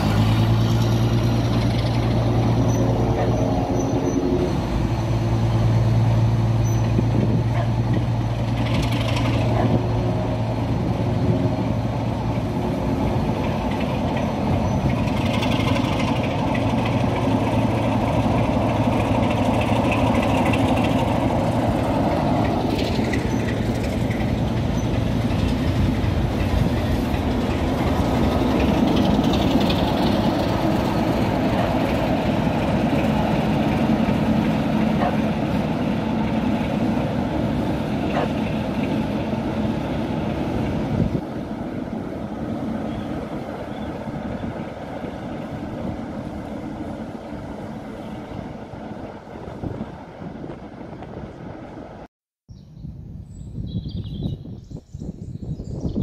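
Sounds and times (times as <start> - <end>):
diesel engine droning: 0.0 - 52.1
train running noise: 0.0 - 52.1.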